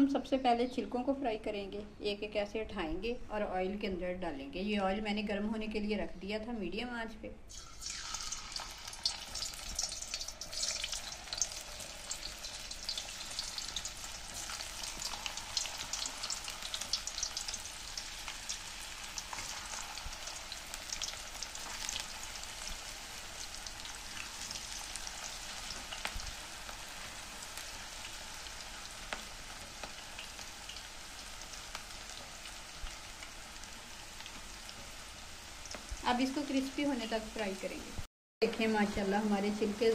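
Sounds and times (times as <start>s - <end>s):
potato peels deep-frying in oil: 7.5s - 37.9s.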